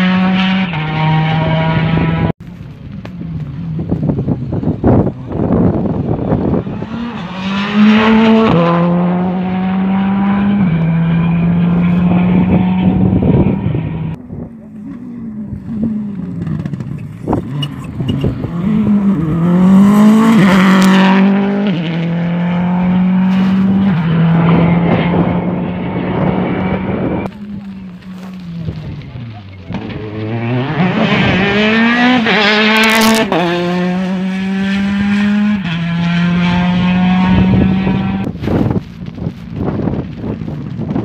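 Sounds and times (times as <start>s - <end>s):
rally car engine revving through gears: 0.0s - 2.3s, 6.5s - 14.2s, 15.6s - 27.3s, 29.7s - 38.3s
car braking: 14.8s - 19.2s.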